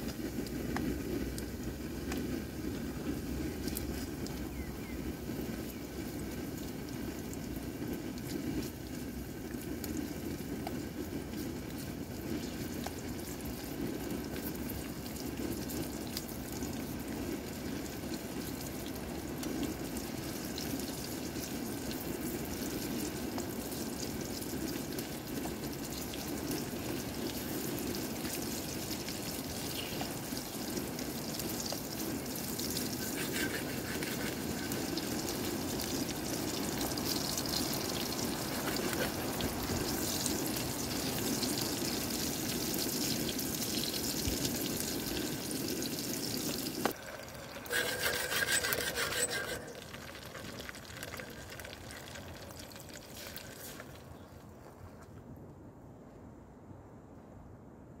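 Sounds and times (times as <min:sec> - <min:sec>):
running water rushing: 0:24.5 - 0:54.2.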